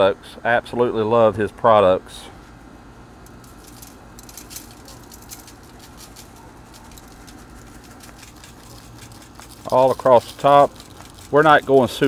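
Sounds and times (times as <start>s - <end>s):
granules pattering from shaker: 3.3s - 12.0s.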